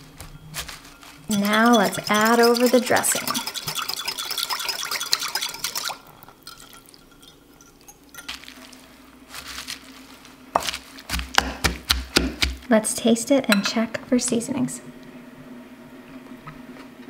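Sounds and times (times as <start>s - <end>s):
salad tossing: 0.5s - 12.7s
wooden spoons knocking glass bowl: 1.3s - 5.9s
utensil scraping bowl: 1.3s - 8.4s
dressing poured onto cabbage: 8.3s - 11.2s.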